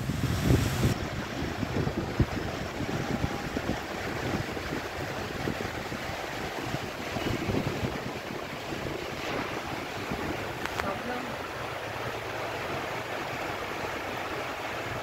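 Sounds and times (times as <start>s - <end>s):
heavy rain pouring: 0.0s - 15.0s
wind buffeting microphone: 0.0s - 15.0s.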